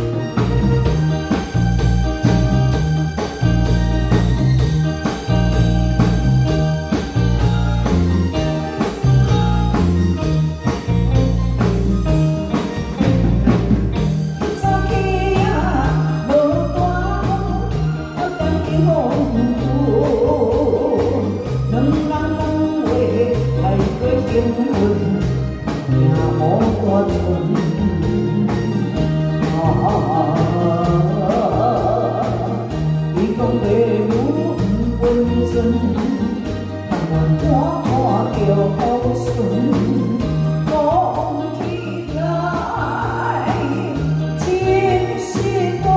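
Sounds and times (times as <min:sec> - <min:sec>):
live band playing: 0:00.0 - 0:45.9
woman singing: 0:14.4 - 0:45.9.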